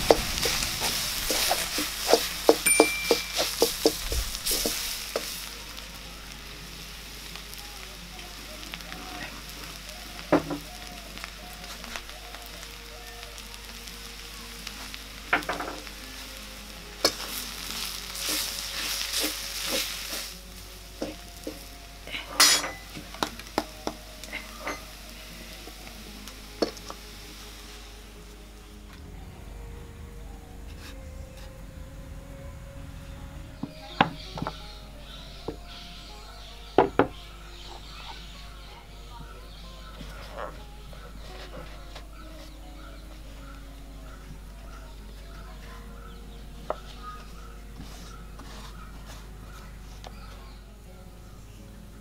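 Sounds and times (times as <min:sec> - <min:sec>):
wooden spoon scraping a pan: 0:00.0 - 0:06.3, 0:17.0 - 0:27.9, 0:40.0 - 0:42.6, 0:46.6 - 0:50.6
food sizzling in a wok: 0:00.0 - 0:29.4, 0:33.6 - 0:52.0.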